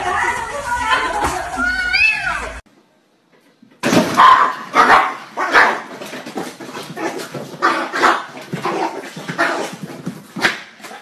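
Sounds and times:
small dog barking: 4.2 - 5.9.

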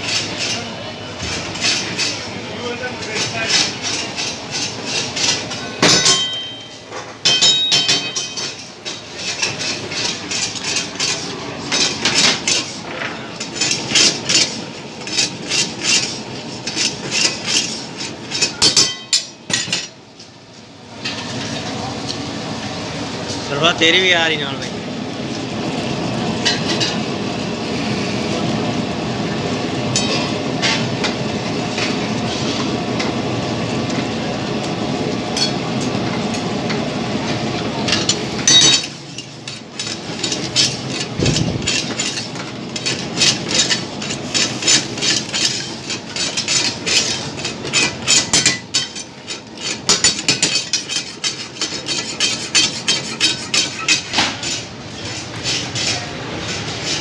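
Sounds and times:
metal ladle scraping a wok: 39.8 - 57.0.

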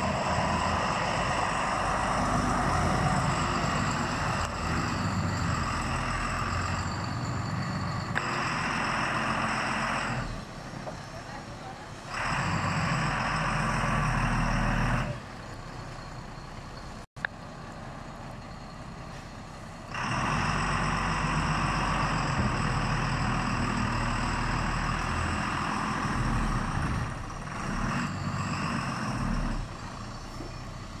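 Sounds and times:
truck diesel engine revving: 0.0 - 11.3, 11.9 - 15.4, 19.8 - 31.0.

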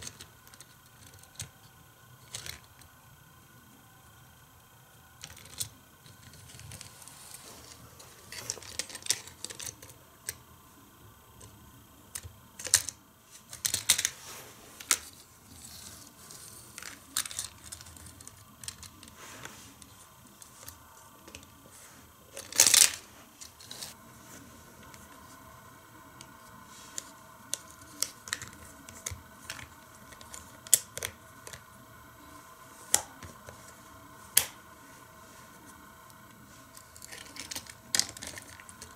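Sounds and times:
plastic toy clicks and rattles: 2.2 - 2.9, 8.3 - 10.4, 12.1 - 14.1, 16.7 - 19.1.

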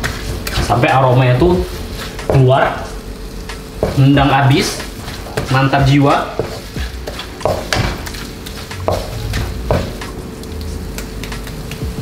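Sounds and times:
spatula scraping a pan: 0.0 - 3.0, 3.8 - 10.0
food sizzling in a wok: 0.0 - 11.2.

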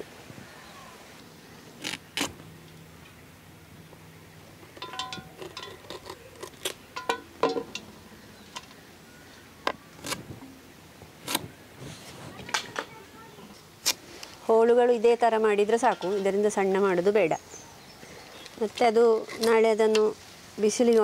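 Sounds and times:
pieces clinking against steel bowl: 4.7 - 6.2, 6.9 - 8.0, 15.8 - 16.5.

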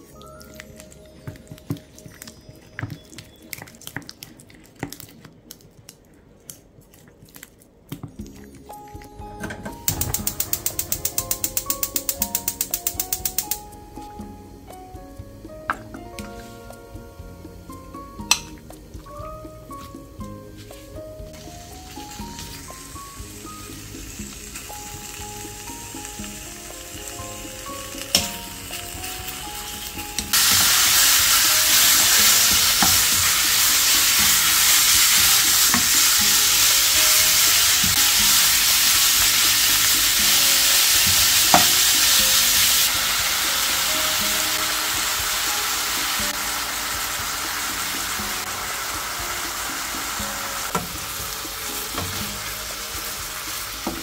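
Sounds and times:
meat sizzling in a frying pan: 21.3 - 54.0.

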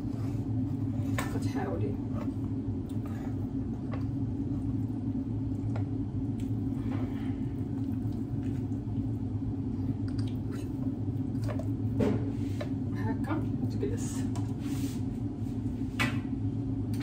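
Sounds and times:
low machine hum: 0.0 - 17.0
clicks and squelches of raw chicken: 9.9 - 11.9.

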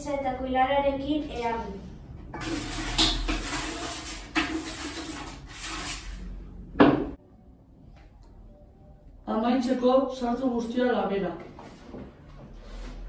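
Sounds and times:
spoon scraping inside pot: 2.4 - 6.4.

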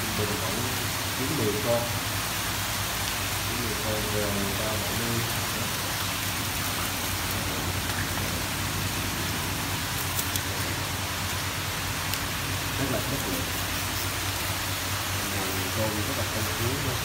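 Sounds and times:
water hissing: 0.0 - 17.0.

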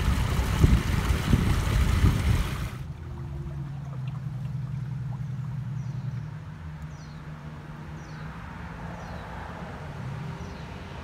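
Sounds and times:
water rushing: 0.0 - 5.8.

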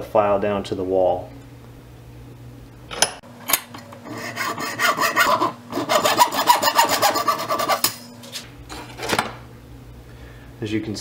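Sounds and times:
hand file rasping plastic: 4.1 - 7.9.

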